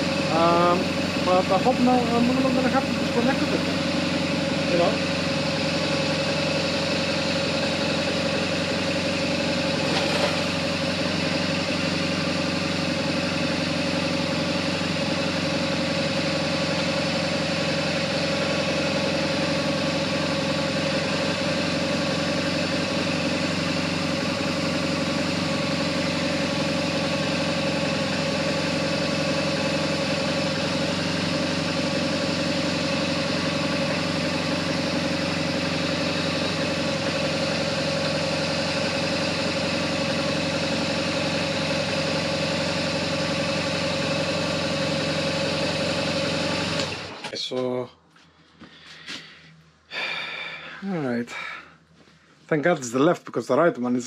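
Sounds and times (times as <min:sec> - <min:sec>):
motorcycle engine idling: 0:00.0 - 0:52.4.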